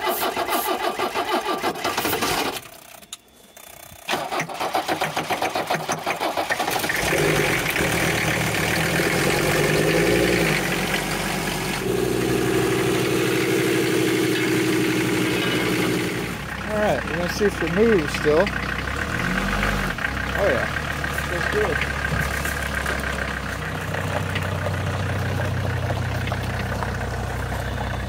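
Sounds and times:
starter motor cranking: 0.0 - 11.0
diesel engine idling: 4.1 - 28.0.

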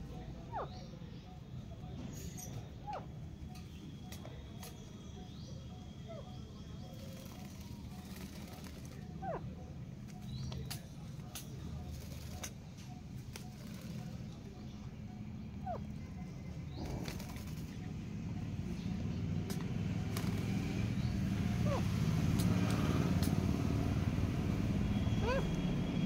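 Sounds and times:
low traffic rumble: 0.0 - 26.0
scattered clicks: 10.0 - 14.3, 22.2 - 23.5.

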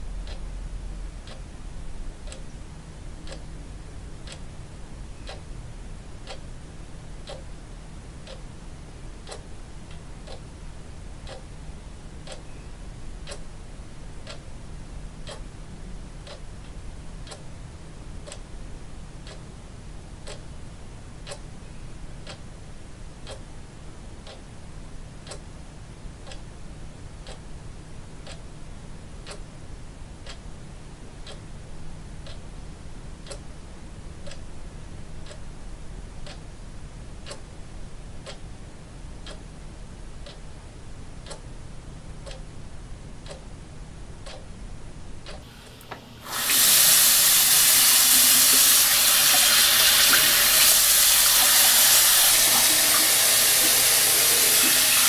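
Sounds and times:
clock ticking: 2.2 - 2.5, 3.2 - 3.5, 4.2 - 4.4, 7.2 - 7.5, 8.2 - 8.4, 9.2 - 10.5, 11.2 - 11.5, 12.2 - 12.4, 13.2 - 13.5, 14.2 - 14.4, 15.2 - 15.5, 16.2 - 16.4, 20.2 - 20.4, 47.3 - 55.0.

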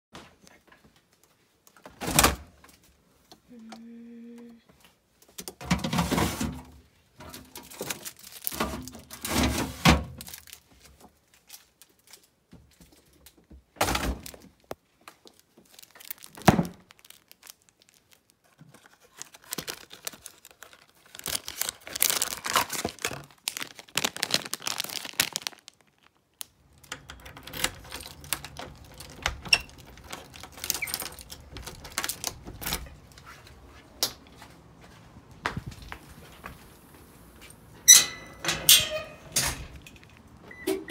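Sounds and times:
plastic packaging crinkling and tearing: 7.3 - 13.4, 14.0 - 33.3.

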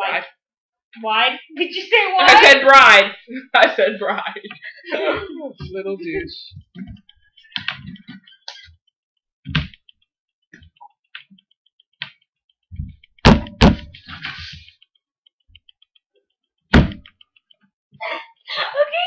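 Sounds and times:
loud sharp knocks: 13.2 - 14.0, 16.7 - 17.1.

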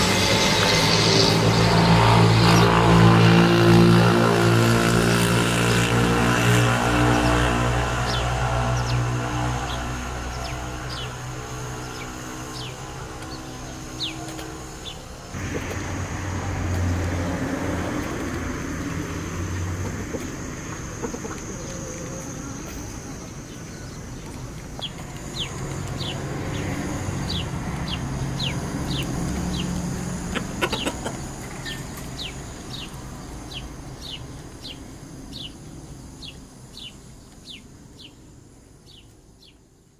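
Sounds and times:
rooster clucking: 15.4 - 18.2, 19.3 - 22.8, 30.2 - 31.9
small bird chirping: 18.1 - 39.6.

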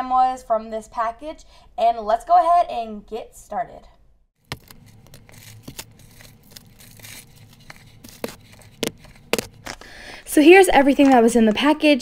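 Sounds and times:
plastic bags and paper rustling: 4.4 - 11.8.

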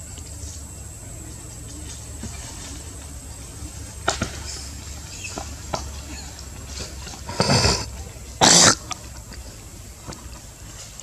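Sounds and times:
monkey harsh cough-like call: 7.3 - 9.0.

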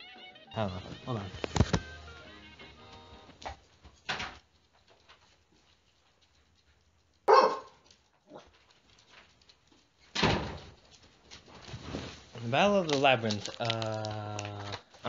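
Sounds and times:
dog barking: 7.3 - 8.5.

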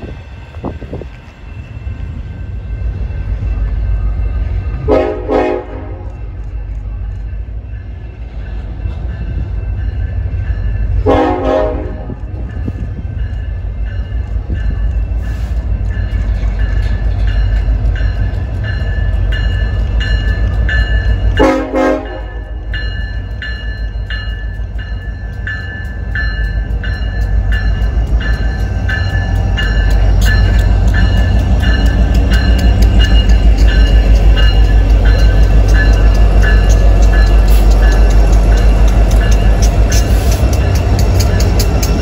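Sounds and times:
freight train rumbling: 0.0 - 42.0
locomotive horn blasts: 4.8 - 6.0, 11.0 - 12.2, 21.4 - 22.5
high ringing beat: 22.6 - 42.0.

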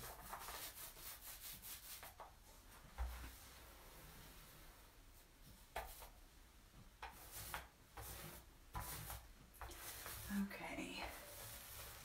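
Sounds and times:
paint roller rubbing: 0.0 - 2.3, 7.0 - 12.0.

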